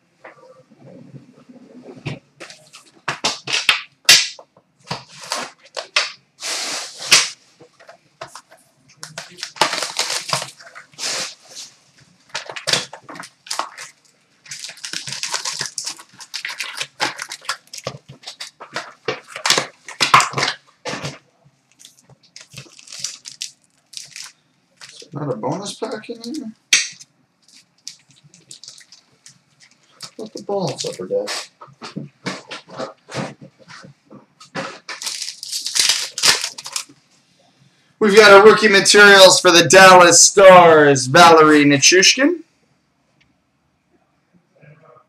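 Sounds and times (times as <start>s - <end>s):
wrappers crinkling and ripping: 4.9s - 6.2s, 8.3s - 25.1s, 25.8s - 31.5s, 32.2s - 37.0s.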